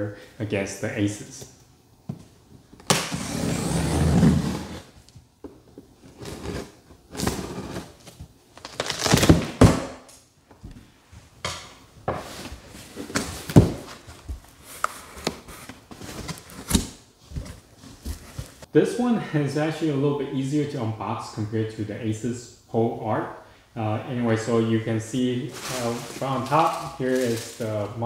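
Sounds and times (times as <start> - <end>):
rustling and scraping: 5.7 - 8.4, 12.1 - 18.7, 25.5 - 28.0.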